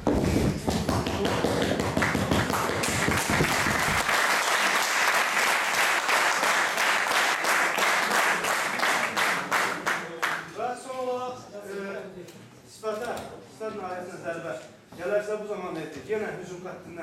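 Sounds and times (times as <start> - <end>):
audience applauding: 1.1 - 10.4.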